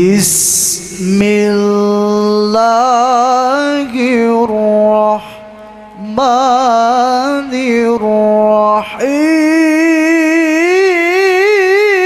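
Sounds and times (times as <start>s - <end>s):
man chanting recitation into microphone: 0.0s - 12.0s.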